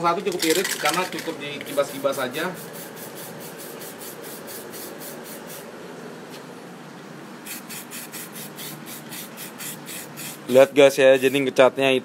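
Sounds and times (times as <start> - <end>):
aerosol spray can hissing: 1.8 - 5.7, 7.4 - 10.5.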